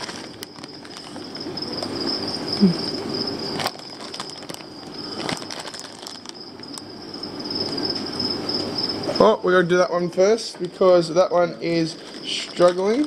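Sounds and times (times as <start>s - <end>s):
plastic bags rustling: 0.0s - 2.1s, 3.5s - 6.9s, 11.6s - 13.0s
steady high-pitched whine: 0.0s - 13.0s.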